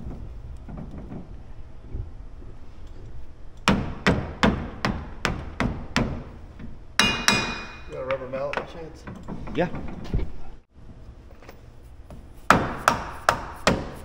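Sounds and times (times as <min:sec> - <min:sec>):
hammer striking metal hub: 0:07.0 - 0:08.8.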